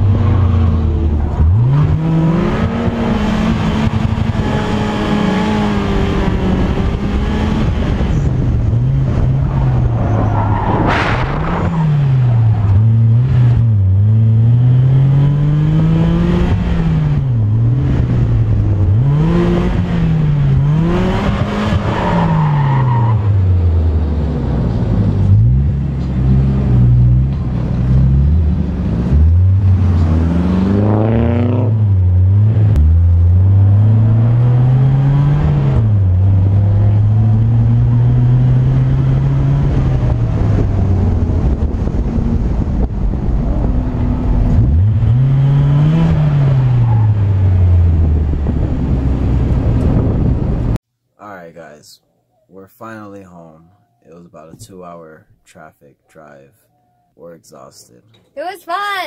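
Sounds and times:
car engine revving hard: 0:00.0 - 0:09.9, 0:18.8 - 0:23.3, 0:27.9 - 0:41.9, 0:43.6 - 0:50.6.

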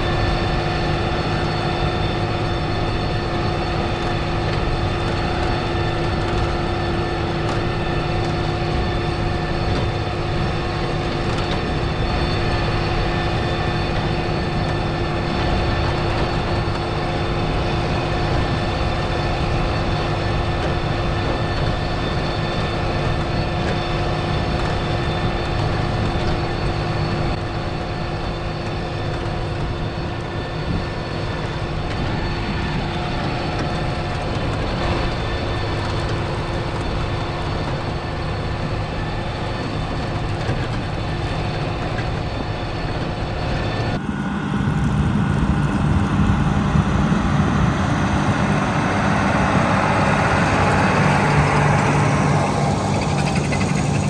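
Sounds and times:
constant machine whine: 0:00.0 - 0:54.0
tractor engine rumble under load: 0:43.8 - 0:54.0.

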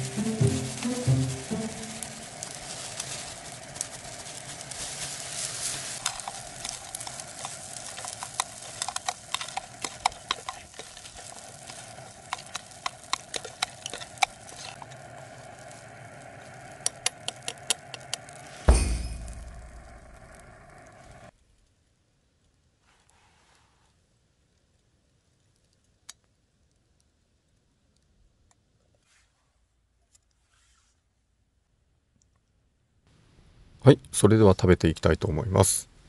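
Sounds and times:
rice sizzling in frying pan: 0:00.0 - 0:21.3
chopsticks tapping against pan: 0:07.0 - 0:14.5, 0:16.8 - 0:18.3.

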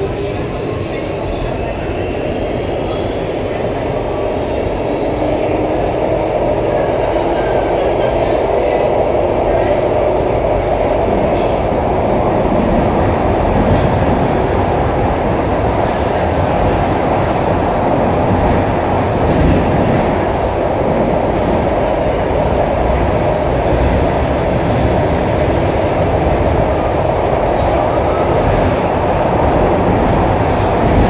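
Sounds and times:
metro wheels roaring on rail: 0:00.0 - 0:31.0.

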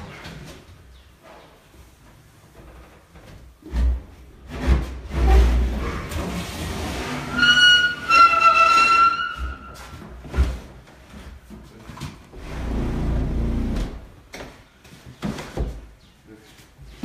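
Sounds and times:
stone sliding squeal: 0:07.2 - 0:09.8.

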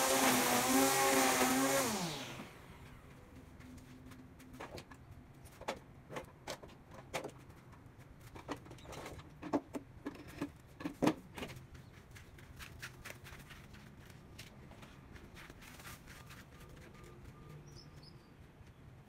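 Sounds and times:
footsteps in sandals: 0:11.6 - 0:18.8.

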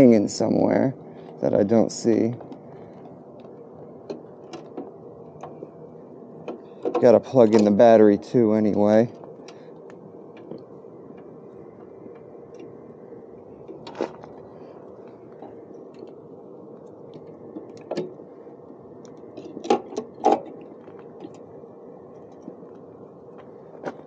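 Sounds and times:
steady background hum: 0:00.0 - 0:24.0.

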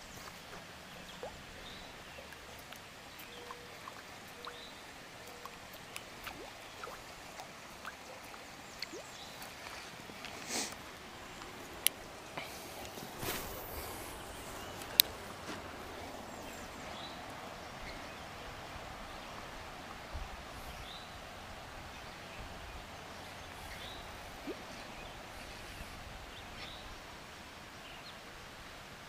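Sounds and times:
faint bird chirps: 0:03.2 - 0:05.6.

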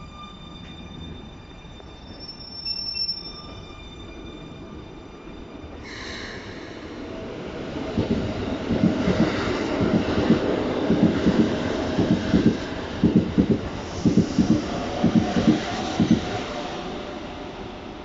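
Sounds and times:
train wheels knocking on rail joints: 0:08.0 - 0:16.4.

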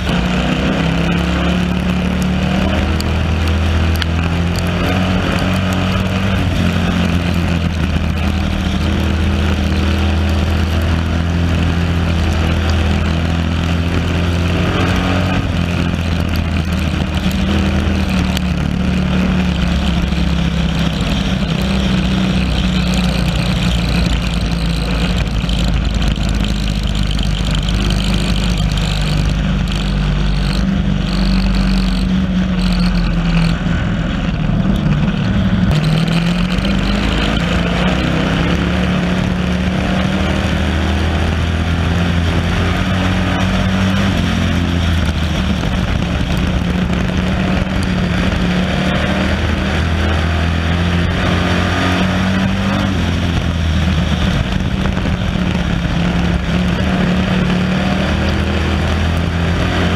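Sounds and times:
other race cars: 0:00.0 - 0:59.9
race car engine running hard: 0:00.0 - 0:59.9.

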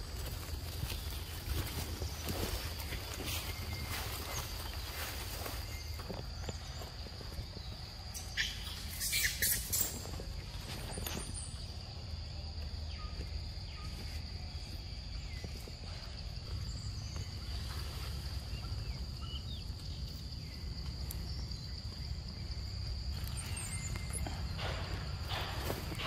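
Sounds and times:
high insect drone: 0:00.0 - 0:26.0
rustling in leaves: 0:00.0 - 0:26.0
faint bird chirps: 0:02.0 - 0:24.8.

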